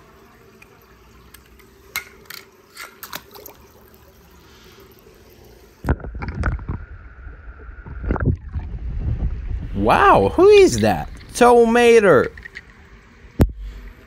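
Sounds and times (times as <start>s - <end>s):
thin steady hum: 0.0s - 14.0s
muffled underwater rush: 5.8s - 14.0s.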